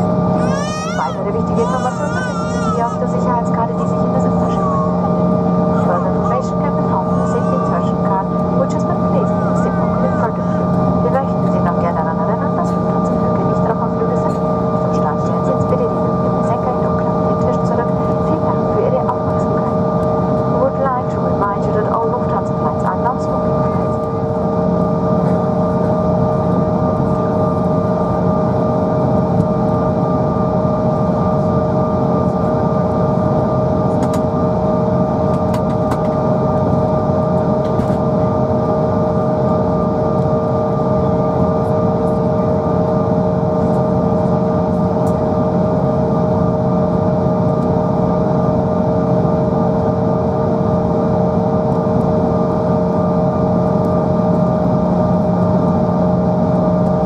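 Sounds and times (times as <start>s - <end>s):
rushing hum: 0.0s - 24.4s
jet engine whine in cabin: 0.0s - 57.0s.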